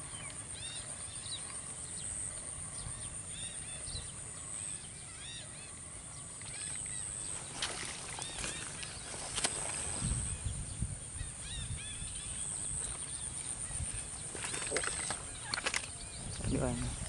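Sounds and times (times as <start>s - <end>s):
small birds chirping: 0.0s - 17.0s
steady high-pitched hum: 0.0s - 17.0s.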